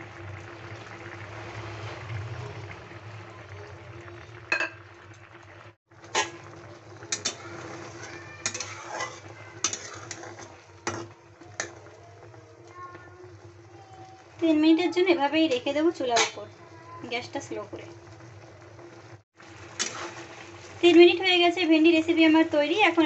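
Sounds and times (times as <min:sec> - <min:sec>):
curry bubbling: 0:00.0 - 0:23.0
metal spatula scraping a pan: 0:06.0 - 0:12.4, 0:15.5 - 0:16.5, 0:19.7 - 0:20.8.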